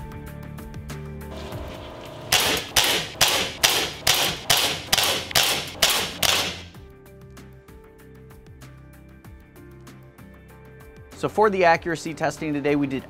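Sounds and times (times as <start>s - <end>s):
music: 0.0s - 13.0s
bb pistol shots: 2.3s - 6.8s.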